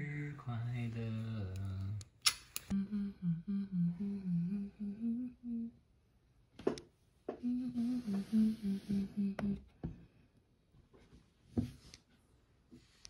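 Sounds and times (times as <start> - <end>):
person humming: 2.7 - 5.8, 7.3 - 9.7.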